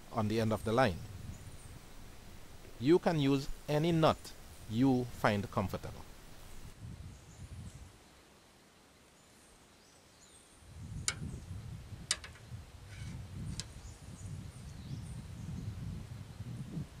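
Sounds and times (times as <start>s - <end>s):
wind rumble on microphone: 0.4s - 2.8s, 5.8s - 8.0s, 10.6s - 17.0s.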